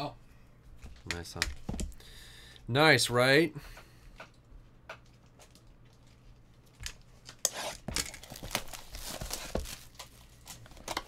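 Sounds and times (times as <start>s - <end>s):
wrapper tearing and crinkling: 7.7s - 11.0s.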